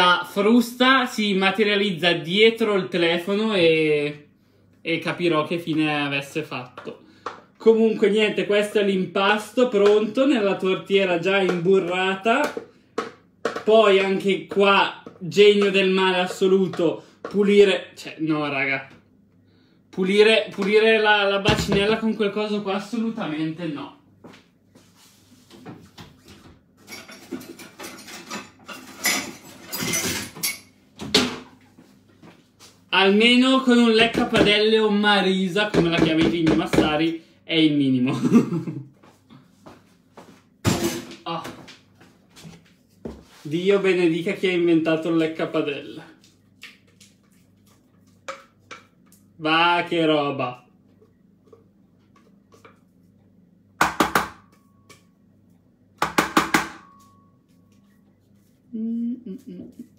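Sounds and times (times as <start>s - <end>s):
utensils clattering against dishes: 26.8s - 31.4s.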